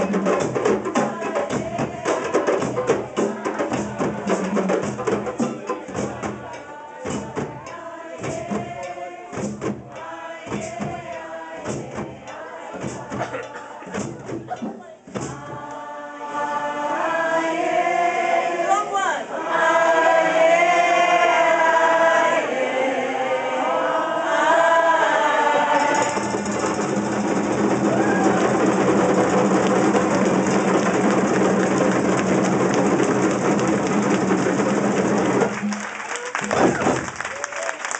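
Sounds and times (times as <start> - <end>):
fast djembe drumming: 0.0 - 15.6, 25.9 - 37.3
group of voices chanting: 1.0 - 14.6, 15.2 - 26.1.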